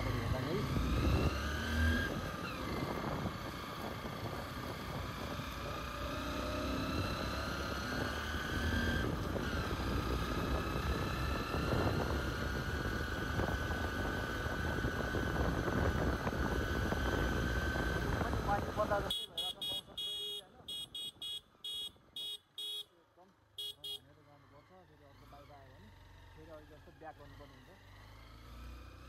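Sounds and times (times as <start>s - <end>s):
motorcycle engine running: 0.0s - 22.8s.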